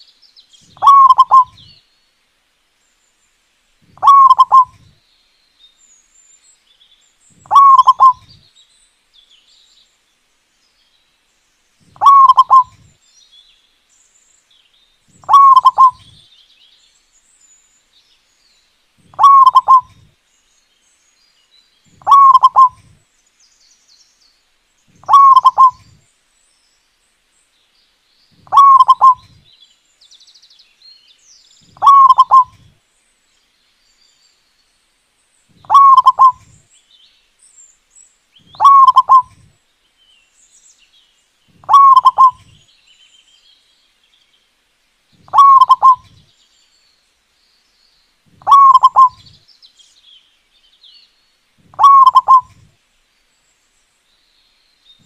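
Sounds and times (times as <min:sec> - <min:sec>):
small birds chirping: 0:00.0 - 0:55.0
dove cooing: 0:00.8 - 0:01.7, 0:04.0 - 0:04.9, 0:07.4 - 0:08.3, 0:12.0 - 0:12.9, 0:15.2 - 0:16.2, 0:19.1 - 0:20.1, 0:22.0 - 0:22.9, 0:25.0 - 0:26.0, 0:28.4 - 0:29.4, 0:31.8 - 0:32.7, 0:35.6 - 0:36.6, 0:38.5 - 0:39.5, 0:41.6 - 0:42.6, 0:45.3 - 0:46.2, 0:48.4 - 0:49.3, 0:51.6 - 0:52.7.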